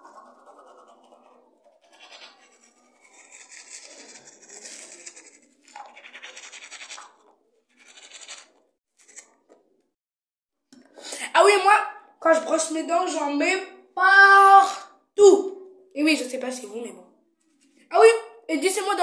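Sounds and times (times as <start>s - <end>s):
toothbrush scrubbing teeth: 0.0s - 9.4s.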